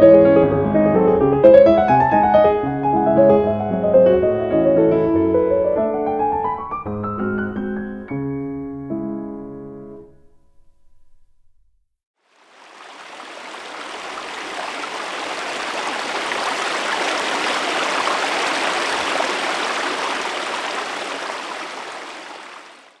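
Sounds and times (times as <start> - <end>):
stream running over stones: 12.2 - 23.0.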